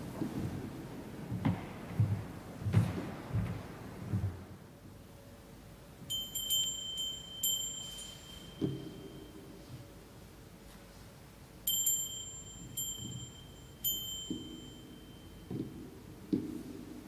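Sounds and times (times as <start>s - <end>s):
altar bells jingling: 6.1s - 9.6s, 11.7s - 15.5s.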